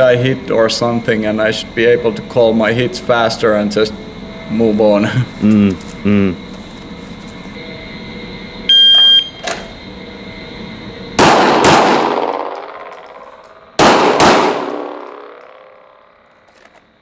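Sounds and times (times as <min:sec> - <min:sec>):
pistol shots echoing indoors: 0:11.2 - 0:15.8.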